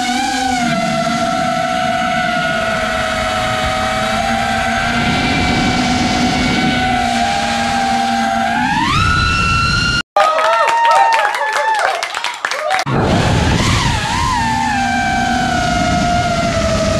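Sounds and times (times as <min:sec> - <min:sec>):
quadcopter motors whining: 0:00.0 - 0:10.0, 0:12.9 - 0:16.9
wind rushing over microphone: 0:01.6 - 0:10.0, 0:12.9 - 0:16.9.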